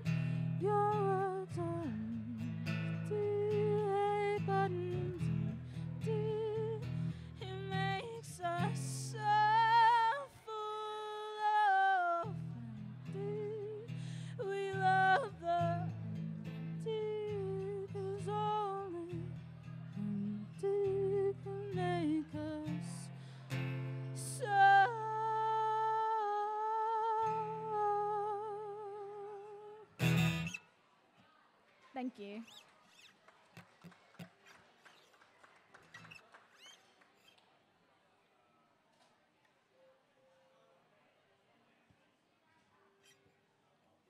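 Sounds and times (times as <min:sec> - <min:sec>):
strummed acoustic guitar: 0:00.0 - 0:10.1, 0:12.2 - 0:26.0, 0:30.0 - 0:30.6
person singing with vibrato: 0:00.0 - 0:19.3, 0:24.2 - 0:30.2.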